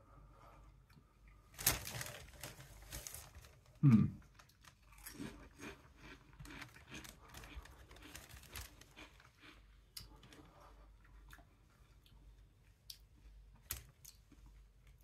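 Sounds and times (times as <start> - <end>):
crisps crunching: 1.5 - 10.4
paper bag crinkling: 1.6 - 4.9, 6.6 - 9.3.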